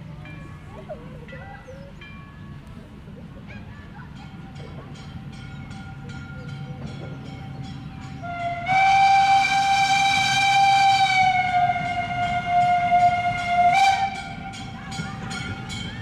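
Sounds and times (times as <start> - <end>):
steam locomotive whistle: 8.2 - 15.8.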